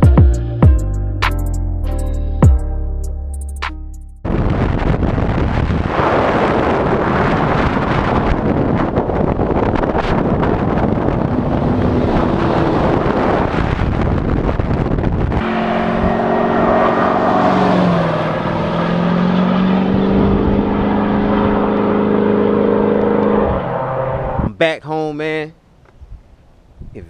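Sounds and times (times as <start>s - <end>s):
truck engine and tyre noise: 3.4s - 24.6s
wind rushing over microphone: 4.2s - 24.6s
steady engine hum: 9.0s - 24.5s.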